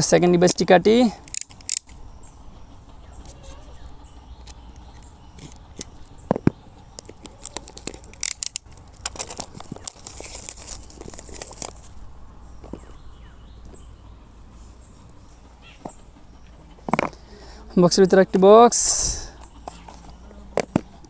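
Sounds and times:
sharp clicks and snaps: 1.2s - 2.0s, 6.9s - 11.8s
plastic wrap crinkling and tearing: 7.1s - 12.0s.

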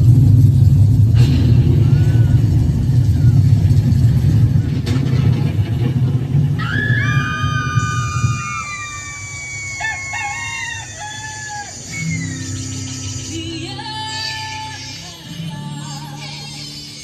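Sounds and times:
low rumble: 0.0s - 9.9s
roosters crowing: 6.6s - 13.4s.

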